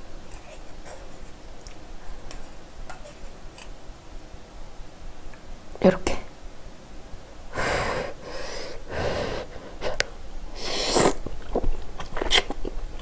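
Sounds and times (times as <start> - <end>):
spaghetti slurping: 10.6 - 12.6.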